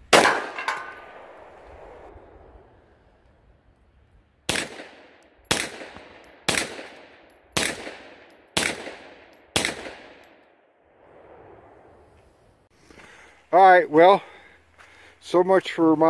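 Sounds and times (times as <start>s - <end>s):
pistol shots echoing: 0.1s - 1.6s, 4.5s - 10.5s.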